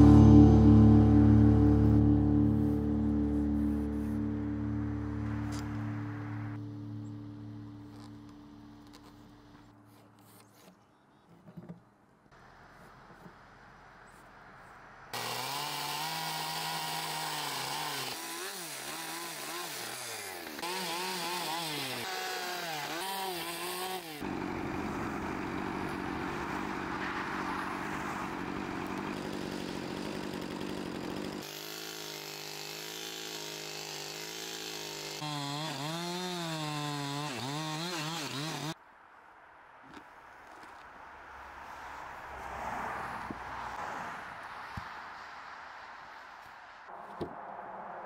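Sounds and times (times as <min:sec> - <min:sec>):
chainsaw cutting wood: 0:15.1 - 0:38.8.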